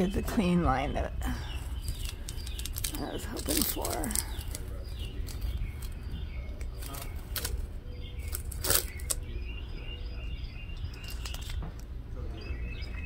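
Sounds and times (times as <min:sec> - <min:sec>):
tape being peeled off crackling: 0:01.9 - 0:06.0, 0:06.6 - 0:09.2.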